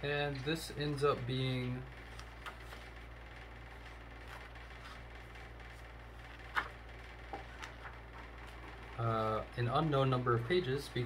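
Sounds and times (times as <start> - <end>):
low room hum: 0.0 - 11.0
book pages rustling: 0.3 - 3.1, 3.7 - 8.8.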